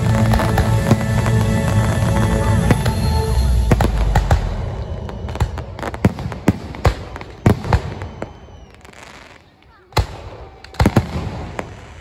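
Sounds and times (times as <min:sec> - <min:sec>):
music: 0:00.0 - 0:06.0
fireworks bangs and crackles: 0:00.0 - 0:12.0.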